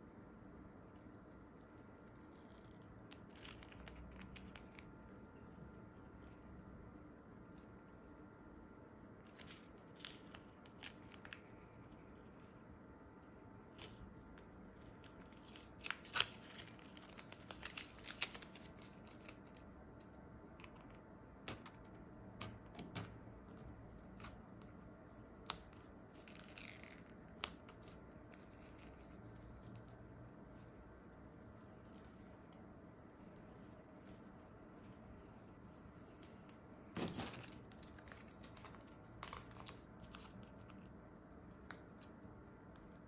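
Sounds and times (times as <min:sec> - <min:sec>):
masking tape peeled off paper: 0:13.7 - 0:19.7.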